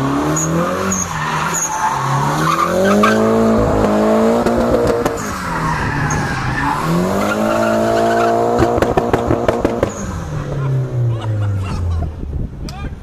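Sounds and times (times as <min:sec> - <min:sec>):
car engine revving: 0:00.0 - 0:12.4
tyres screeching in wheelspin: 0:00.3 - 0:10.2.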